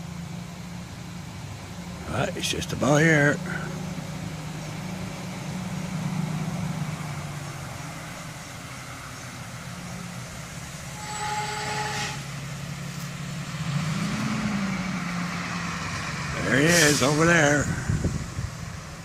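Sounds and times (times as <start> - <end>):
dump truck engine running: 0.0 - 19.0
brake squeal and hiss: 9.8 - 13.3, 16.4 - 18.0.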